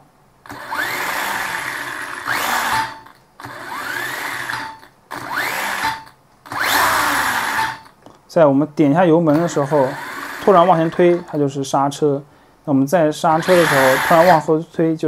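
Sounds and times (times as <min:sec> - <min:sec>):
toy car motor whirring: 0:00.5 - 0:07.9, 0:13.4 - 0:14.4.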